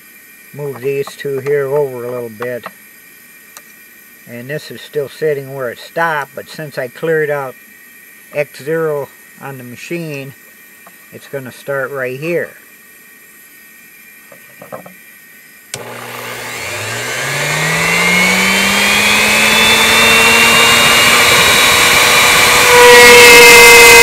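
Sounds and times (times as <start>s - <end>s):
steady higher whine: 15.7s - 24.0s
router spindle motor running: 15.8s - 24.0s.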